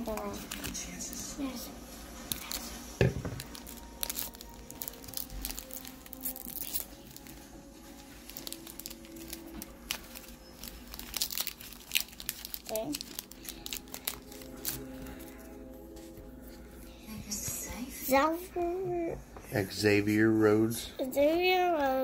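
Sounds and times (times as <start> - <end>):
foil wrapper crinkling: 0.0 - 1.6, 2.2 - 15.5
scissors snipping foil: 3.4 - 7.3, 8.3 - 15.3.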